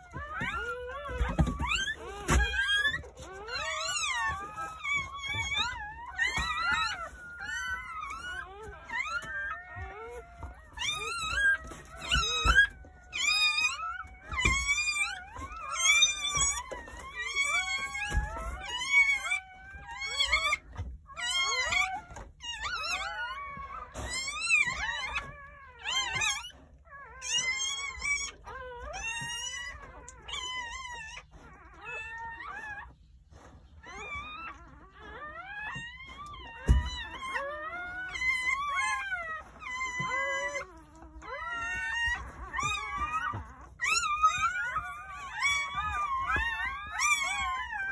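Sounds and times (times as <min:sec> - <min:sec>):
puppies crying: 0:00.0 - 0:47.9.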